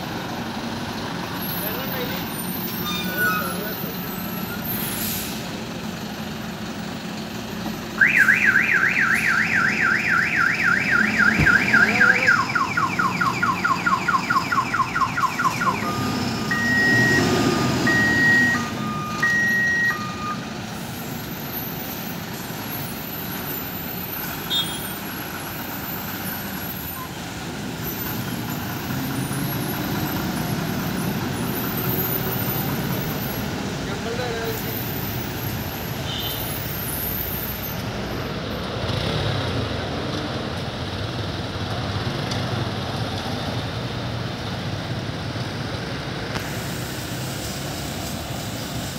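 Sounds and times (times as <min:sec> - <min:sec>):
diesel truck engine rumble: 0:00.0 - 0:48.9
vehicle alarm warbling and beeping: 0:02.7 - 0:04.6, 0:08.0 - 0:20.4.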